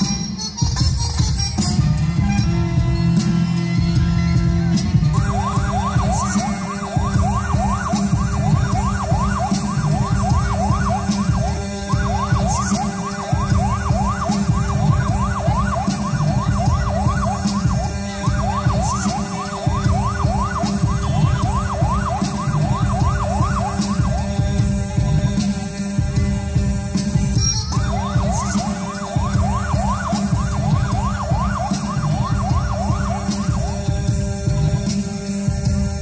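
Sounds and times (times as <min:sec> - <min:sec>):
low droning bass: 0:00.8 - 0:06.2, 0:19.7 - 0:28.4.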